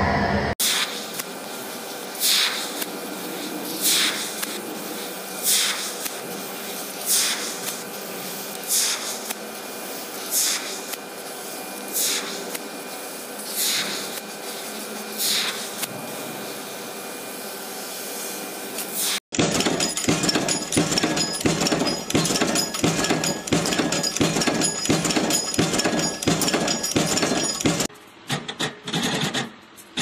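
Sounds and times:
loud machine sound: 0.0s - 27.9s
assist gas hissing: 0.6s - 19.2s
sharp hissing bursts: 0.6s - 19.2s.

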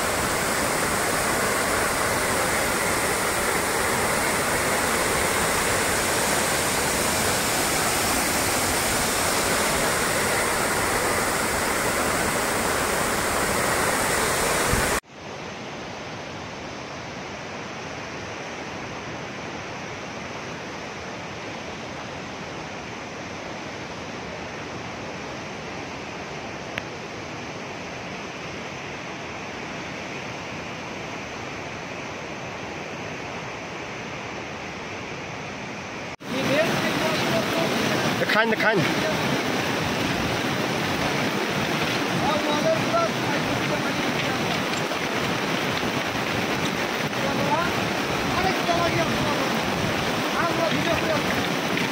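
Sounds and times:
flooded river rushing: 0.0s - 51.9s
floodwater rushing down embankment: 0.0s - 51.9s.

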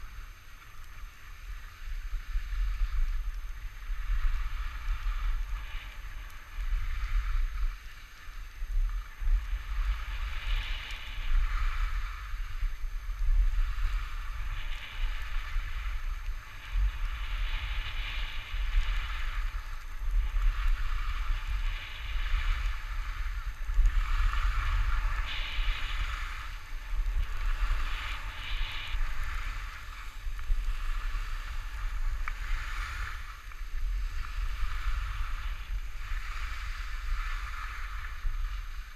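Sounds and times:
skis scraping packed snow: 0.0s - 38.9s
wind rushing over microphone: 0.0s - 38.9s.

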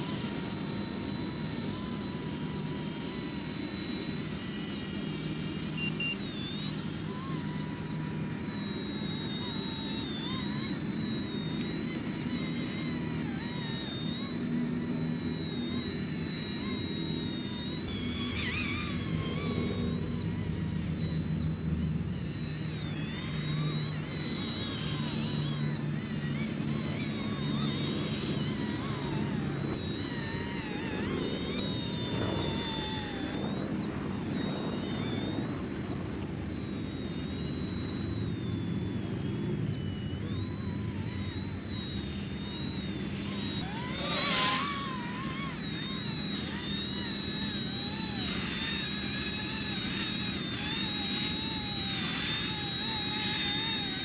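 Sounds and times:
remote-control helicopter whine: 0.0s - 54.0s.

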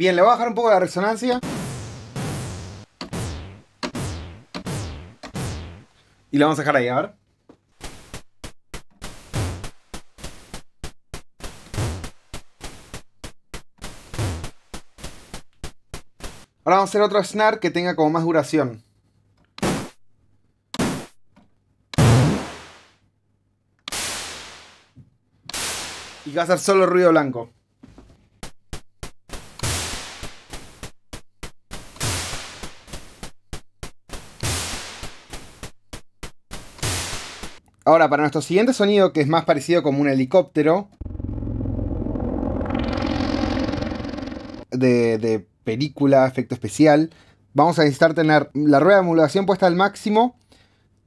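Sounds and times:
synthesized snare hits: 2.2s - 5.9s, 31.7s - 33.0s, 36.5s - 37.6s
white-noise snare hit: 23.9s - 24.9s, 25.5s - 26.4s, 29.6s - 30.7s, 31.7s - 33.0s, 34.4s - 35.5s, 36.5s - 37.6s.

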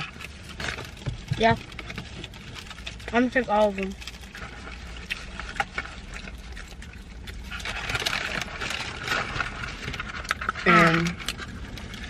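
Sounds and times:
paper and foil wrappers rustling: 0.0s - 12.0s
person chewing: 0.0s - 12.0s.

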